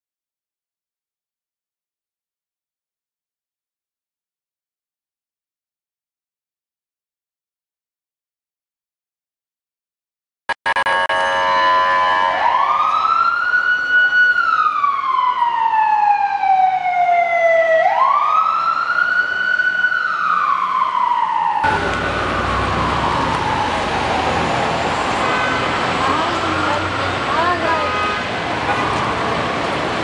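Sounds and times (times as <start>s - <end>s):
siren wailing: 10.7s - 27.9s, 28.6s - 29.8s
street traffic noise: 10.7s - 30.0s.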